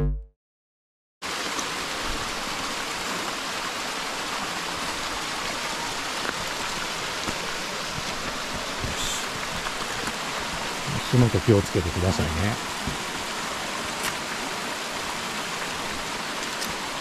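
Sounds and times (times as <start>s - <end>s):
stream flowing over rocks: 1.2s - 17.0s.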